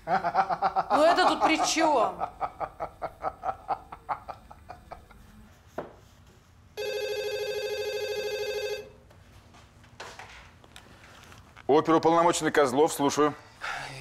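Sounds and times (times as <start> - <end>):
man laughing: 0.0 - 5.4
telephone ringing: 6.8 - 9.0.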